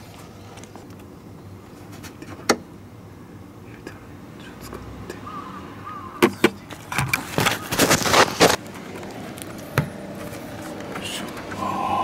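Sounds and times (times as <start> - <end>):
oil filter scraping and rustling: 6.7 - 11.3.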